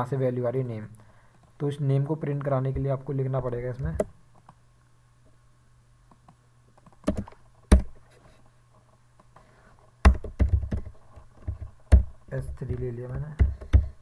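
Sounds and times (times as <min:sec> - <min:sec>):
faint low hum: 0:00.0 - 0:14.0
keyboard and mouse clicks: 0:06.1 - 0:08.0, 0:10.0 - 0:14.0.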